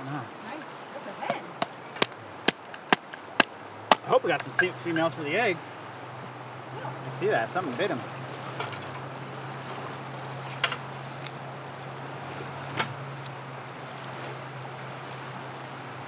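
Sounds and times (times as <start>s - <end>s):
river water rushing: 0.0s - 16.0s
sharp knocks: 1.3s - 4.8s.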